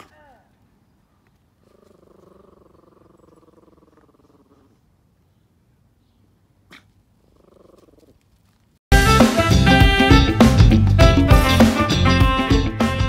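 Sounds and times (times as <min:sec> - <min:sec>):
dog growling faintly: 0:01.6 - 0:04.8.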